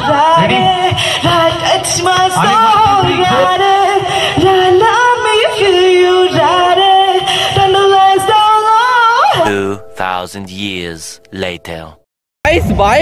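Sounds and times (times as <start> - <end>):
person singing long held notes: 9.4 - 10.9
musical accompaniment: 9.4 - 12.0.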